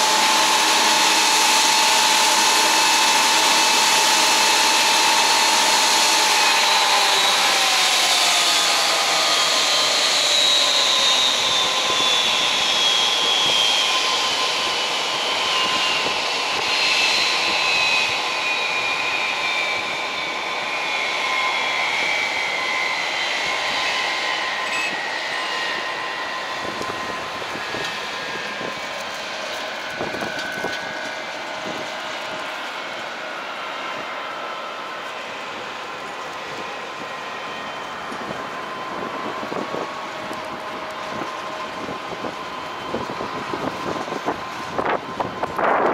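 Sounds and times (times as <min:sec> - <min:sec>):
jet engines roaring and whining: 0:00.0 - 0:45.9.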